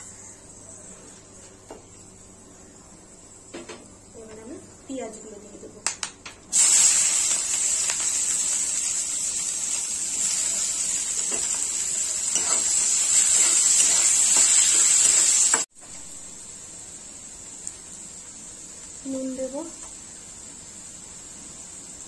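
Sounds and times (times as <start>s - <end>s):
onions sizzling in oil: 6.5s - 22.0s.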